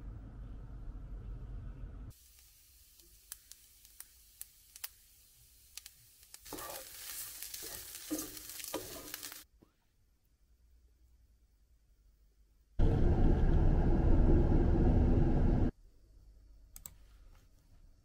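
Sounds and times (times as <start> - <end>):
rice sizzling in a pan: 2.1 - 9.5
stirring sounds: 5.8 - 9.5.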